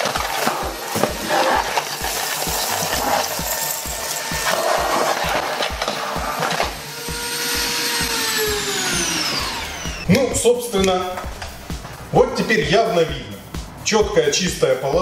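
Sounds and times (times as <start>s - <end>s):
plastic pellets rattling in vacuum: 0.0s - 5.9s
stick vacuum running: 0.0s - 11.8s.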